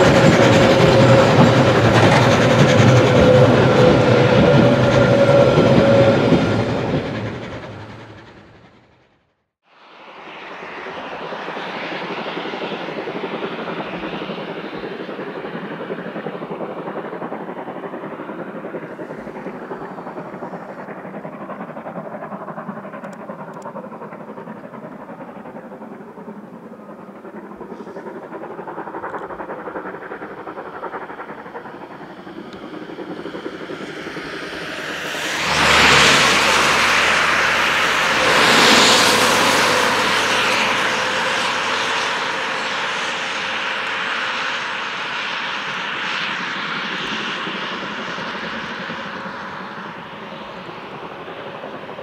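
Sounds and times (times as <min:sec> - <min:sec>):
steam locomotive chuffing: 0:00.0 - 0:09.0, 0:12.0 - 0:52.0.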